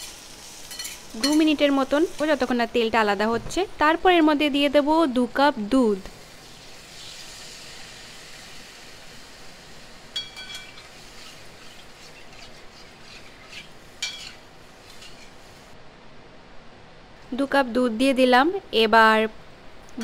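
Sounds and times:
potatoes sizzling in a pan: 0.0 - 3.0, 5.6 - 15.8
spatula clinking against pan: 10.2 - 10.8, 14.0 - 14.4.

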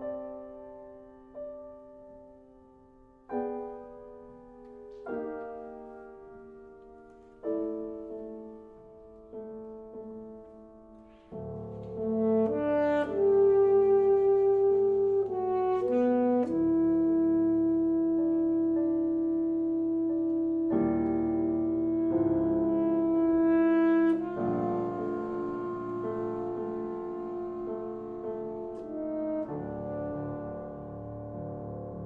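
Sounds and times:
piano chords ringing: 0.0 - 32.0
wind instrument long notes: 11.8 - 30.8.

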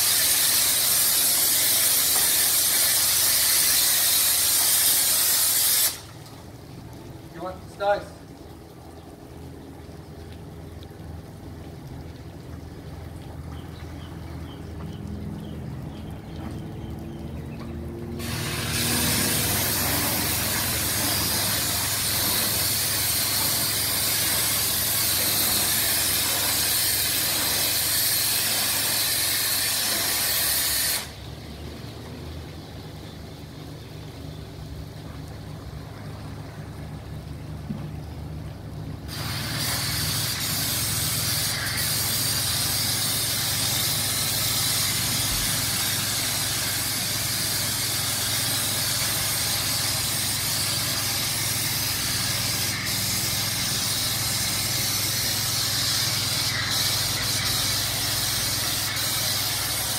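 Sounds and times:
pressure washer jet hissing: 0.0 - 6.1, 18.2 - 31.2, 39.1 - 59.9.

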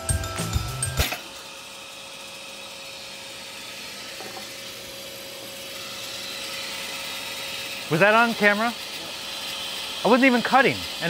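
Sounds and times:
bandsaw whirring: 0.0 - 11.0
dust extraction running: 0.0 - 11.0.

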